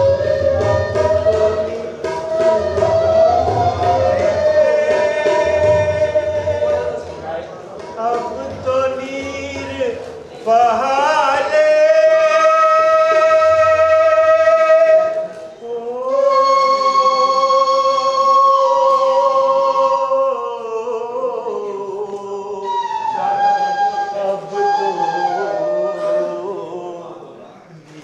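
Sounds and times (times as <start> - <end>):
man singing high held notes: 0.0 - 7.2, 7.9 - 27.4.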